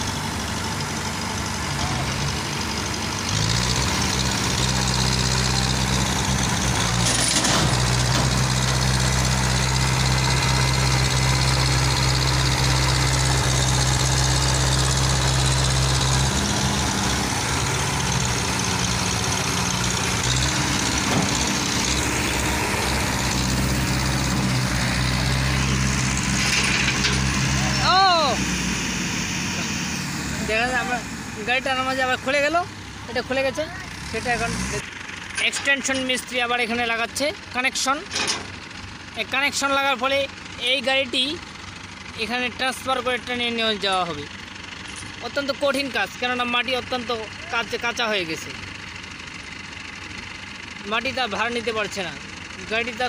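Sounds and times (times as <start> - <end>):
tractor engine revving: 0.0 - 53.0.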